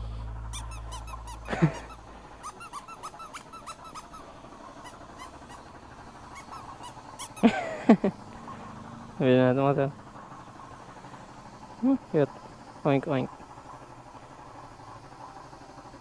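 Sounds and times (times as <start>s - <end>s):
rubber squeeze toy squeaking: 0.5s - 5.7s, 6.3s - 7.5s.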